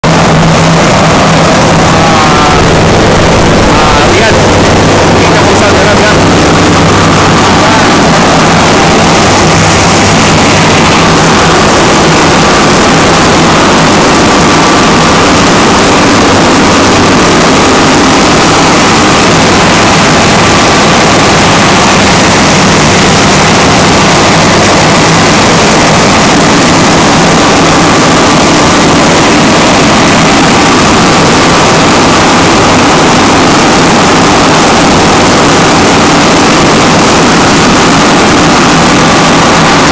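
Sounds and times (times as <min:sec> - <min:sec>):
diesel generator running: 0:00.0 - 0:39.9.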